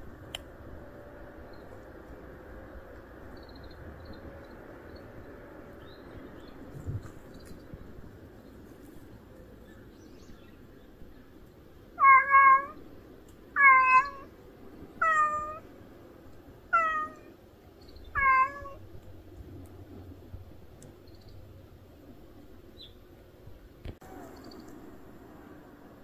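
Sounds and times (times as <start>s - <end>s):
cat meowing: 12.0s - 12.8s, 13.6s - 14.3s, 15.0s - 15.6s, 16.7s - 17.3s, 18.1s - 18.8s.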